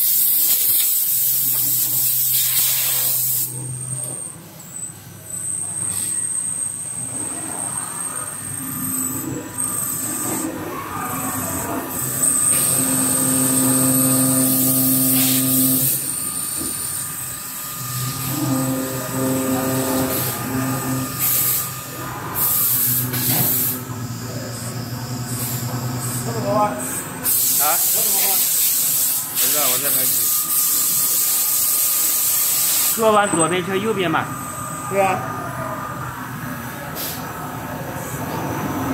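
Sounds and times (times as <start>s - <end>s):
coolant spray hissing: 0.0s - 3.5s, 12.0s - 16.2s, 27.2s - 33.1s
lathe motors whining: 6.8s - 27.3s
metal cutting noise: 8.5s - 23.9s.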